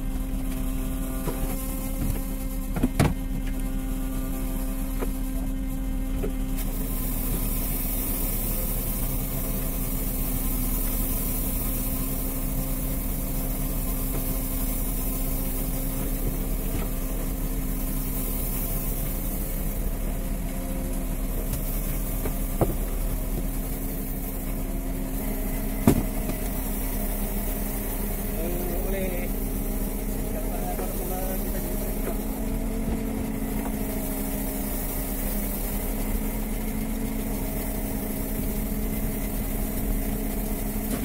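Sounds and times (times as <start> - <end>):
boat engine humming: 0.0 - 41.0.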